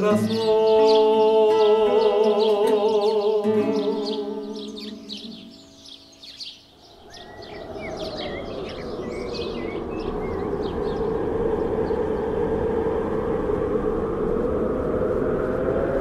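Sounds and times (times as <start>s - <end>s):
birds chirping: 0.0s - 13.2s
steady rushing rumble: 6.2s - 16.0s.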